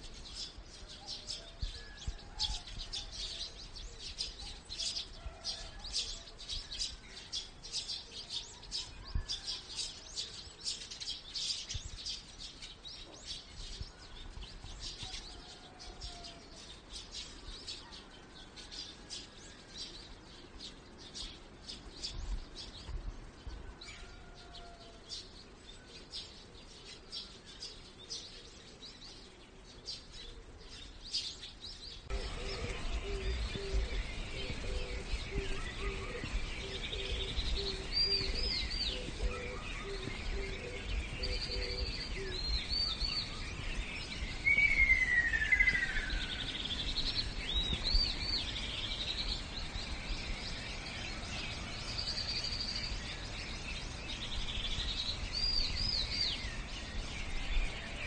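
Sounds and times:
birdsong with downward whistle: 0.0s - 58.0s
small birds chirping: 0.0s - 58.0s.

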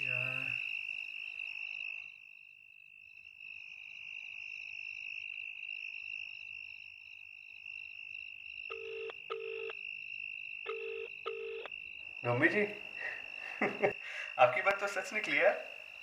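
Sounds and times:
crickets chirping: 0.0s - 16.0s
phone ringback tone: 8.7s - 9.7s, 10.7s - 11.7s.

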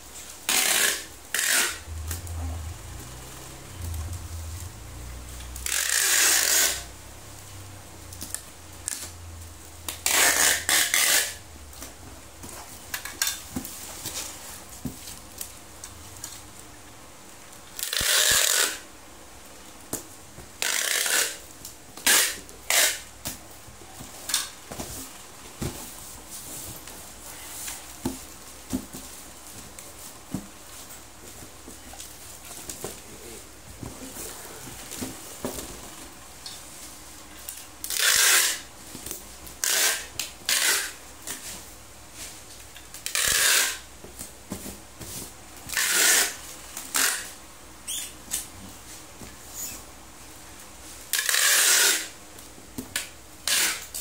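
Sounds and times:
packing tape ripping: 0.5s - 4.8s, 5.5s - 6.9s, 9.9s - 11.4s, 17.8s - 18.8s, 37.5s - 38.7s, 43.0s - 43.8s.

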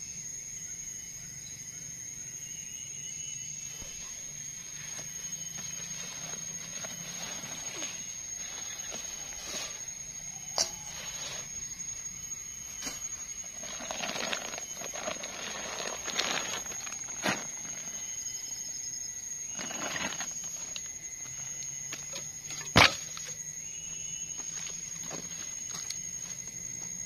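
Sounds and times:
rustling: 3.7s - 10.2s, 12.7s - 18.2s, 19.5s - 20.9s.

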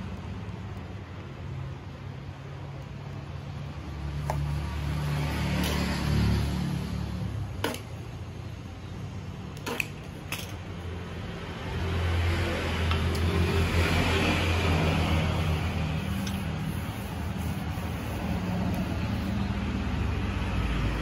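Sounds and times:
vehicle engine rumble: 11.7s - 21.0s.

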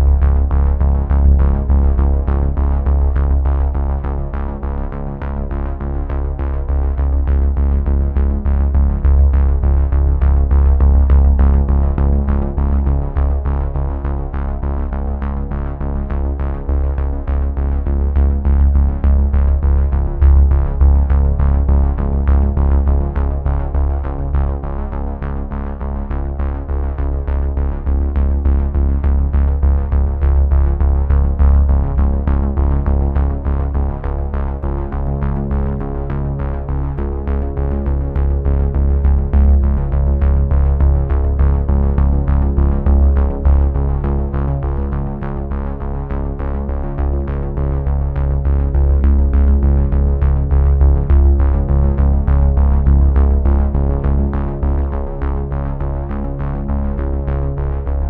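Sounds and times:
electronic music with heavy bass: 16.5s - 58.0s.

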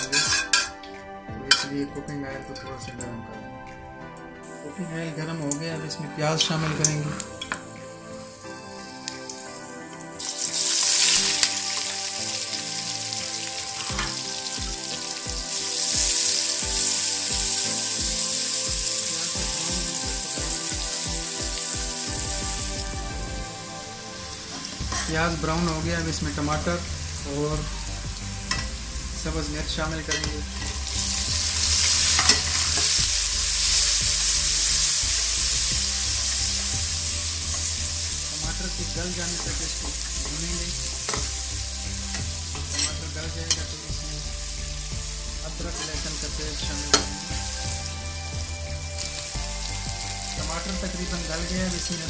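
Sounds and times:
metal spoon scraping a pot: 0.0s - 0.8s, 31.8s - 33.0s, 42.1s - 43.6s
onions sizzling in hot oil: 7.4s - 52.0s.

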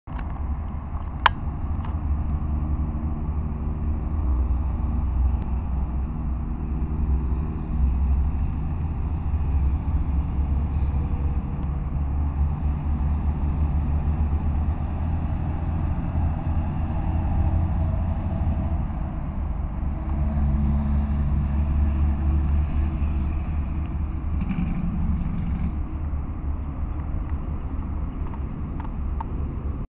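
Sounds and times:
road noise: 0.0s - 29.9s
car engine rumble: 0.1s - 29.9s.

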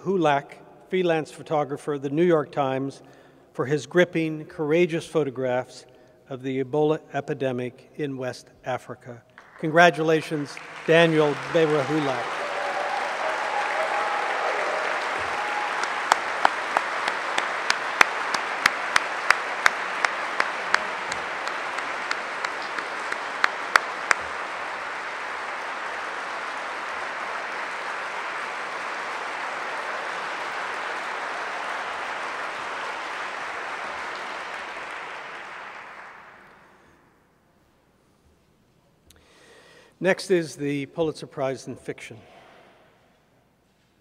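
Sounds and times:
audience applauding: 9.4s - 36.9s.

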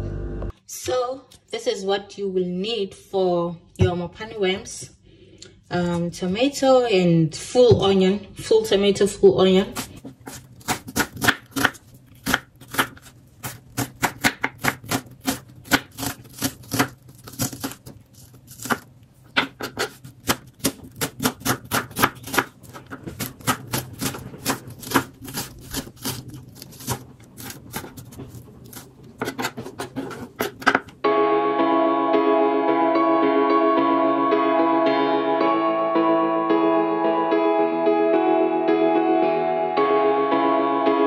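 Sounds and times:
knife chopping on wooden board: 9.8s - 31.0s.

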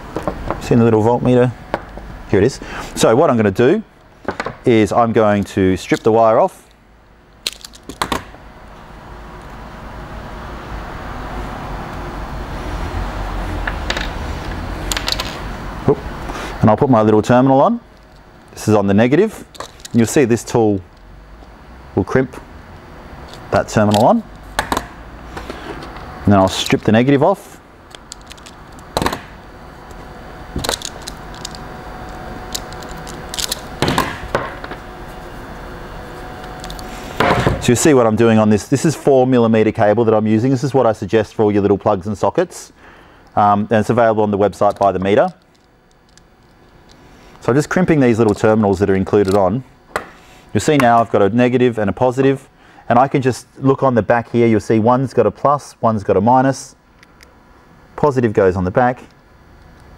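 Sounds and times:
faint steady hum: 0.0s - 59.9s
clicks and snaps of cable and tools: 7.4s - 8.3s, 13.9s - 15.4s, 19.5s - 20.0s, 27.9s - 29.3s, 30.6s - 34.0s, 36.5s - 36.9s, 44.7s - 47.0s
vehicle noise: 7.4s - 16.8s, 19.4s - 37.8s.

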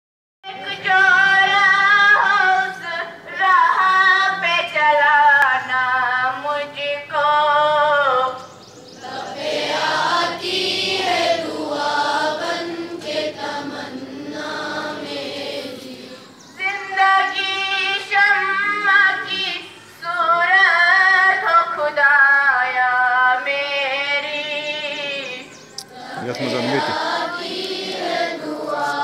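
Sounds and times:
children singing in unison: 8.9s - 21.4s, 25.5s - 29.0s.

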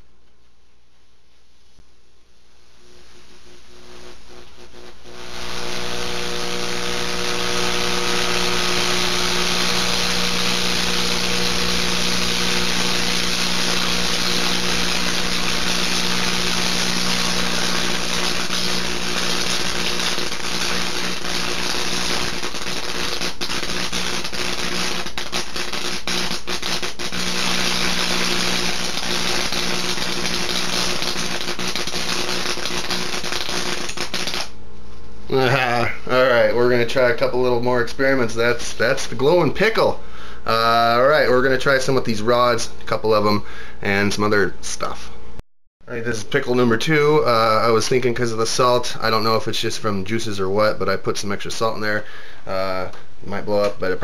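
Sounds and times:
electrical arcing crackles: 1.8s - 34.6s
electrical buzz: 2.2s - 35.6s
electrocuted pickle sizzling: 2.3s - 34.6s.

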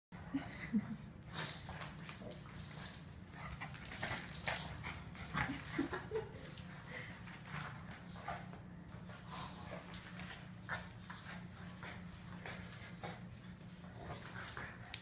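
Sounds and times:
dogs scuffling: 1.6s - 15.0s.

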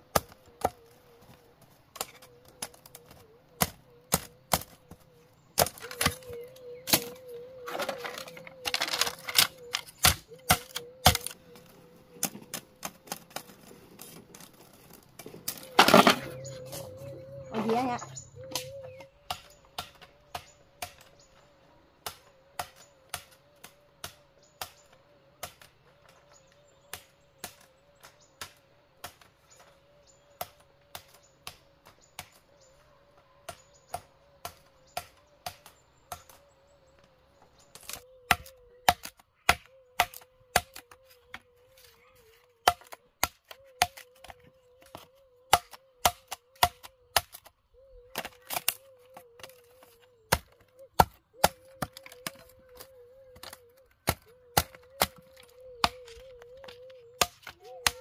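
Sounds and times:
machete chopping bamboo: 2.0s - 4.8s, 5.6s - 7.2s, 8.7s - 11.4s, 18.5s - 21.1s, 22.0s - 23.4s, 37.8s - 41.4s, 42.6s - 47.5s, 48.1s - 49.6s, 50.3s - 58.0s.

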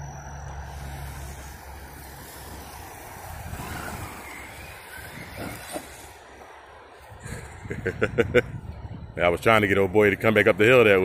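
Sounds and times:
electric motor whining: 0.0s - 6.6s
tyres running through grass: 1.2s - 7.2s.

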